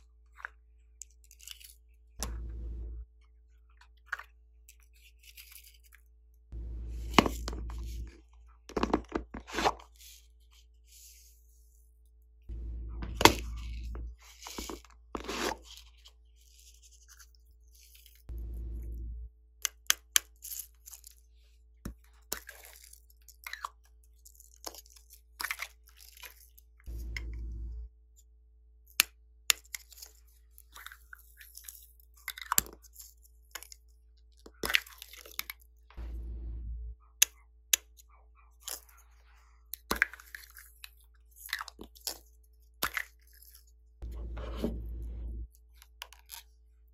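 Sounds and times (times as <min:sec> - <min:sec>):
short low rumble: 0:02.2 - 0:03.1, 0:06.6 - 0:08.3, 0:12.5 - 0:14.2, 0:18.3 - 0:19.4, 0:26.9 - 0:27.9, 0:35.9 - 0:37.0, 0:44.0 - 0:45.5.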